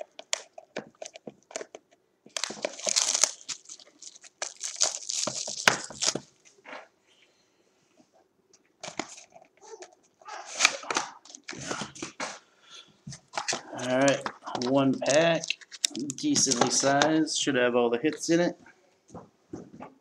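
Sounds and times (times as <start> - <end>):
shrink-wrap crinkling and tearing: 2.3 - 6.3, 13.3 - 16.9.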